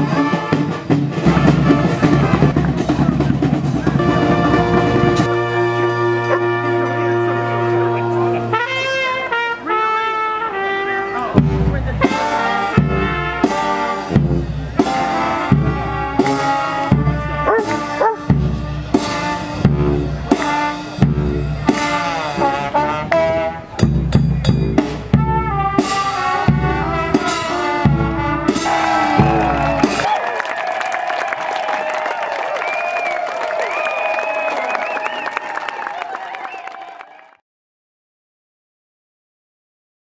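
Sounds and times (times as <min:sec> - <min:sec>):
brass band playing: 0:00.0 - 0:30.2
bass drum beat: 0:00.1 - 0:05.4, 0:11.3 - 0:30.1.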